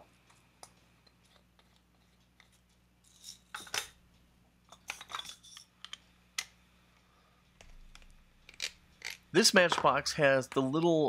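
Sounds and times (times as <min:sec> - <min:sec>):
small parts and tool rattling: 0:01.0 - 0:04.0, 0:04.7 - 0:06.5, 0:07.6 - 0:09.8.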